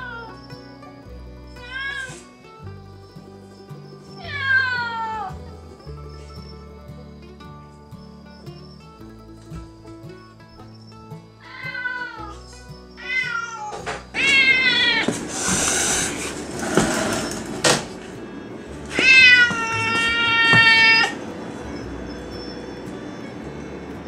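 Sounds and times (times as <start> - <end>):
cat meowing: 0.0 - 0.4, 1.6 - 2.3, 4.2 - 5.4, 11.4 - 12.4, 13.0 - 15.6, 18.9 - 21.2
faint background music: 0.0 - 24.0
hissy noise rush: 15.1 - 18.8.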